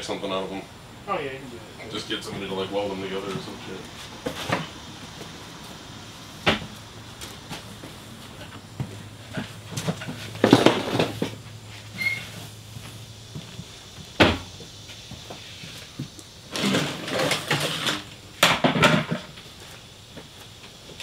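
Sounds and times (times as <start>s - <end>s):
clutter rustling and clattering: 6.5s - 14.5s, 15.2s - 20.8s.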